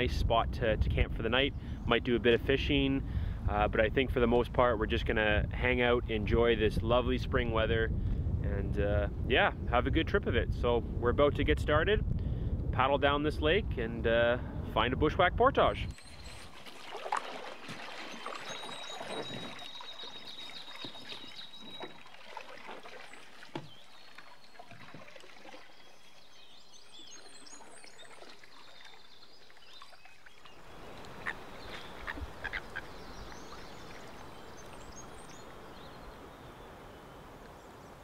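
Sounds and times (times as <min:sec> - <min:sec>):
water splashes: 0:15.9 - 0:36.3
bird calls: 0:15.9 - 0:38.0.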